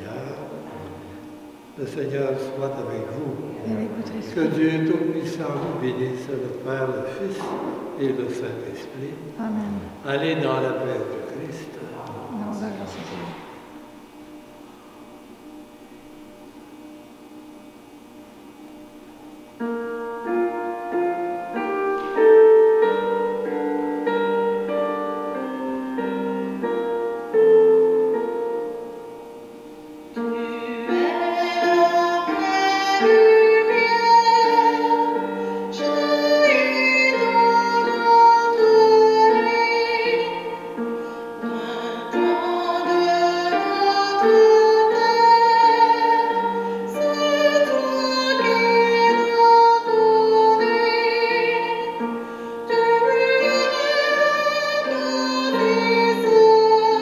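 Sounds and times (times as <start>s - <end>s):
keyboard accompaniment: 0.0s - 57.0s
woman singing with vibrato: 30.2s - 40.8s, 41.4s - 57.0s.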